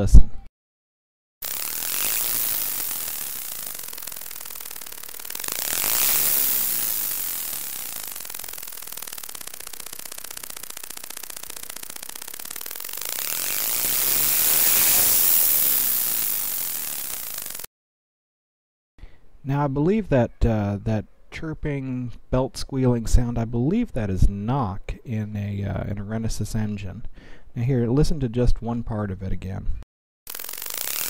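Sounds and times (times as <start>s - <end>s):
rotary engine noise: 1.4s - 17.7s, 30.3s - 31.0s.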